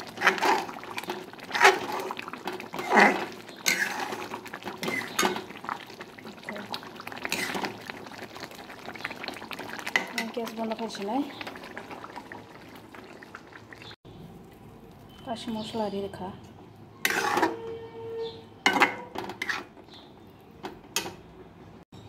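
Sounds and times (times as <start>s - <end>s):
metal ladle scraping pan: 0.0s - 6.0s, 7.2s - 8.0s, 17.0s - 20.0s
curry bubbling: 0.0s - 16.2s.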